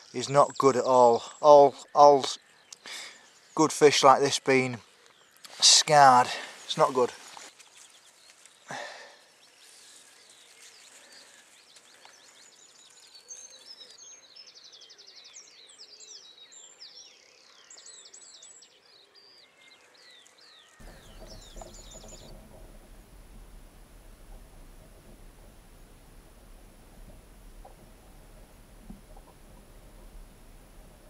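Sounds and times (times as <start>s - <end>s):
songbirds singing: 0.0s - 31.0s.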